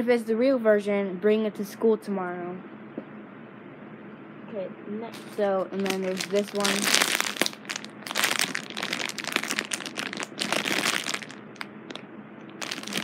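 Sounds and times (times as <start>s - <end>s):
plastic packaging crinkling: 5.1s - 13.0s.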